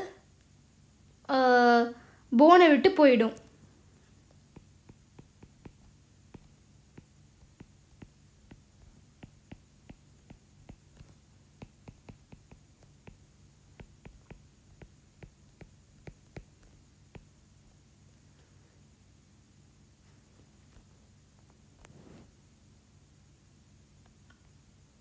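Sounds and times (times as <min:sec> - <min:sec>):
low steady hum: 0:00.0 - 0:25.0
stylus tapping on tablet screen: 0:04.3 - 0:17.4.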